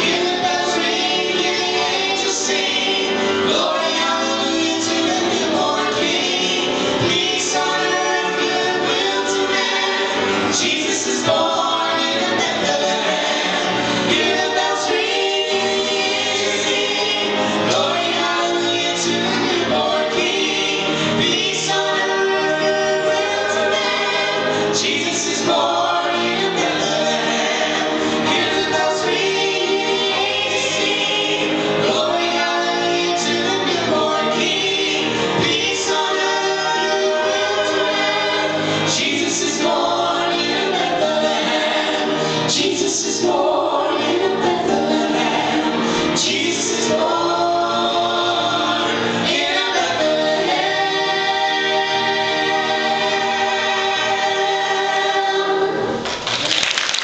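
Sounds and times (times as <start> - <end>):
group singing gospel in harmony: 0.0 - 56.6.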